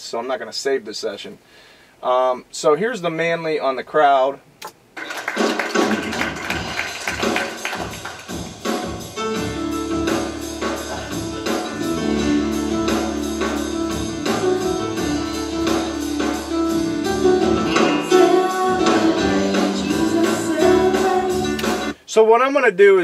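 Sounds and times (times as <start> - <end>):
worship band with steady beat: 6.5 - 22.0.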